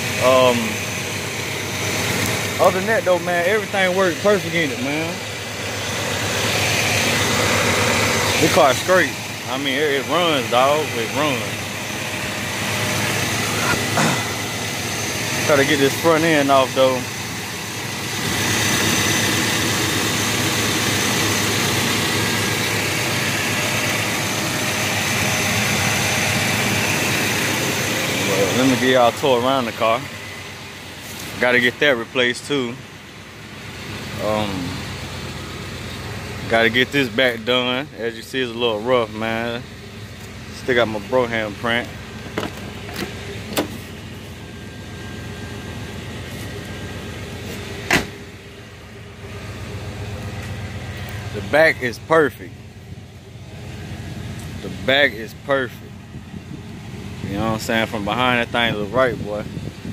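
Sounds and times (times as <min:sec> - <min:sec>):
engine idling: 0:00.0 - 0:59.9
steady low hum: 0:00.0 - 0:59.9
car door slamming: 0:42.2 - 0:44.0, 0:47.8 - 0:48.3
car door handle and latch clicking: 0:47.9 - 0:48.1.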